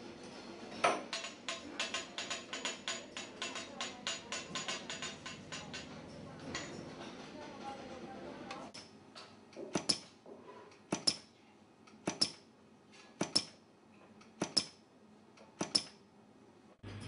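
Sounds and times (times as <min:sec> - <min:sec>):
gluing machine double clicks: 0:11.9 - 0:12.4.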